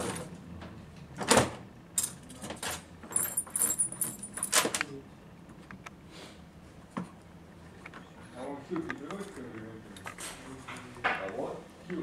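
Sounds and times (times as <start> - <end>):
steel parts clinking and rattling: 2.0 - 4.9.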